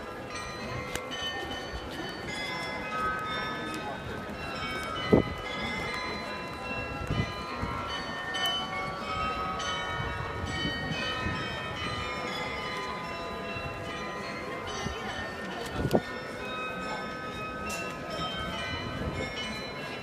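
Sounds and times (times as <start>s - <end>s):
murmur of street noise: 0.0s - 20.0s
tuned bells playing a melody: 0.0s - 20.0s.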